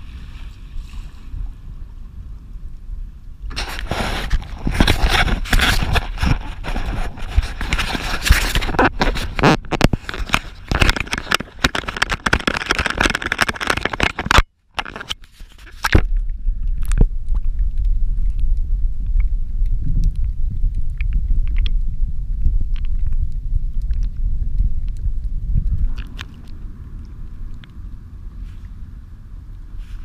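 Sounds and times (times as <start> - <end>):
camera handling and splashing: 3.5 - 16.2
muffled underwater rumble: 15.3 - 30.0.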